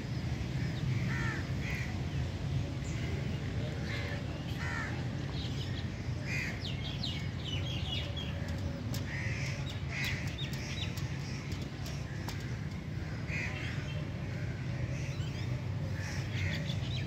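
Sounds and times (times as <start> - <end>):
crows cawing: 0.9 - 1.9, 4.6 - 5.0.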